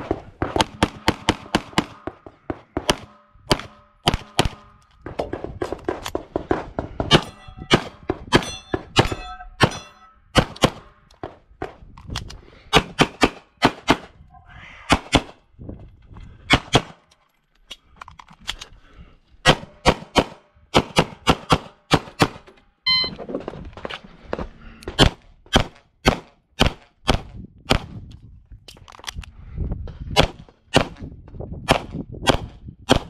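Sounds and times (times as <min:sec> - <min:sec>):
steel plates ringing: 0:07.2 - 0:07.8.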